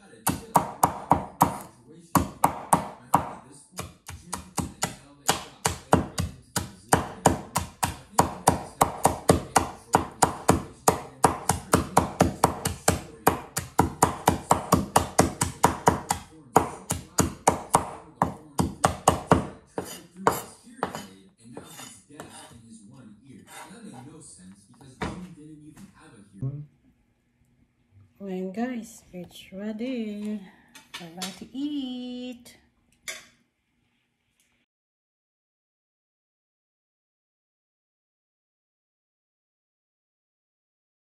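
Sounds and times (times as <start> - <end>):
cleaver chopping on wooden board: 0.2 - 22.5.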